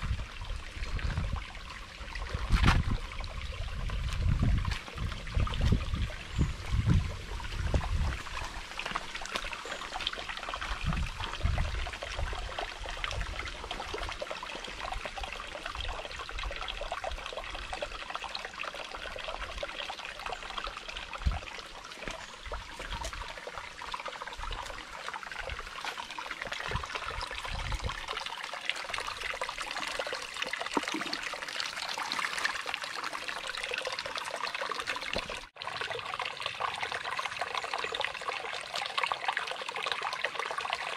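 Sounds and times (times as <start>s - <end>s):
stream trickling over rocks: 0.0s - 40.9s
low rumbles on microphone: 2.3s - 8.3s.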